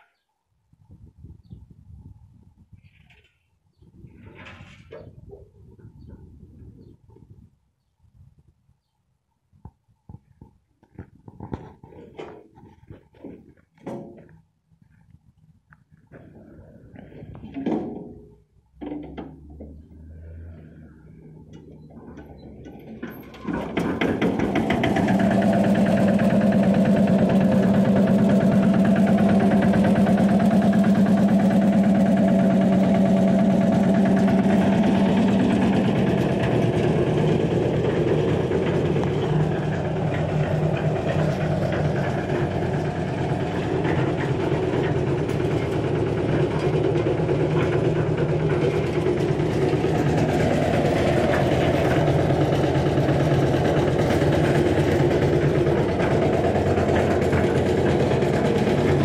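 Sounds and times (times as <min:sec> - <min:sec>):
cement mixer engine running: 0:18.8 - 0:59.0.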